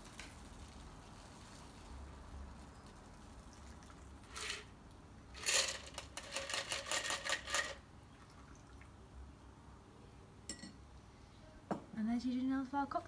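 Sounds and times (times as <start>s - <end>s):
ice rattling in metal shaker: 0.0s - 4.7s, 5.3s - 7.8s.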